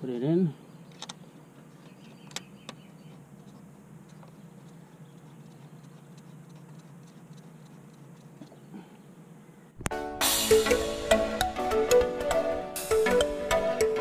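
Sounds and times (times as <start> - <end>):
steady low hum: 0.0 - 10.1.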